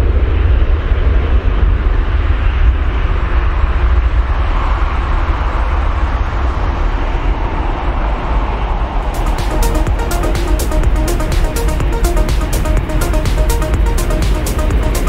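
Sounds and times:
jet airliner engines deep rumble: 0:00.0 - 0:15.0.

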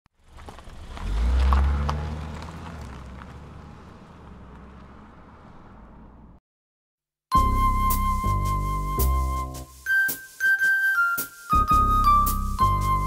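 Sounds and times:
low car engine rumble: 0:00.1 - 0:06.4.

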